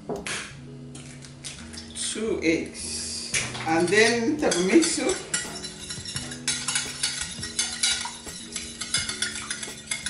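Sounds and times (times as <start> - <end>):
whisk ticking against glass: 3.8 - 10.0.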